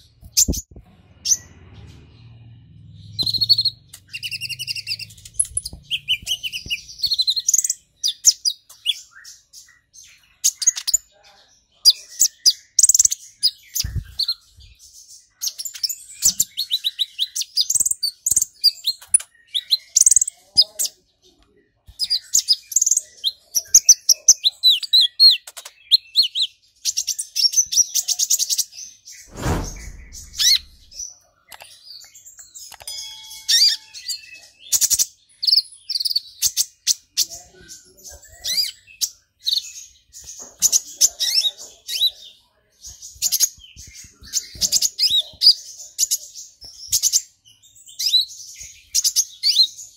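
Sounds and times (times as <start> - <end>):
bird twittering song: 0.0 - 49.9
thump: 29.3 - 31.0.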